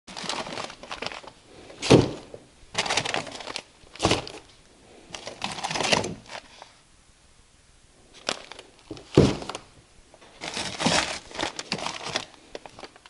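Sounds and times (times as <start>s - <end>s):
frozen packages thudding: 0.1s - 4.5s, 5.1s - 6.6s, 8.2s - 13.0s
paper crinkling and rustling: 0.1s - 6.8s, 8.1s - 13.0s.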